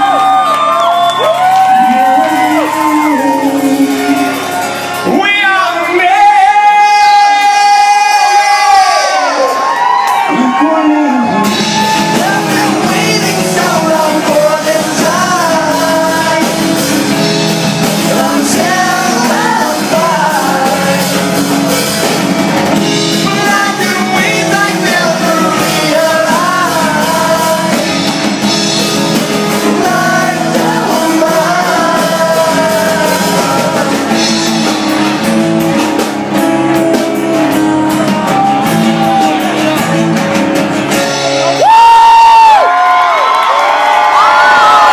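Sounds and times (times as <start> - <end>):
man singing: 1.8 - 9.6, 10.3 - 35.2
acoustic guitar: 11.4 - 41.6.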